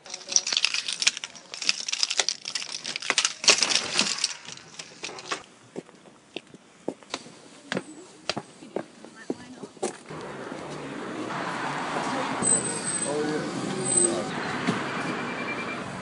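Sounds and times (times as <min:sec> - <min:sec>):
camera handling rustling: 0:00.1 - 0:05.5
footsteps on paving slabs: 0:03.8 - 0:10.8.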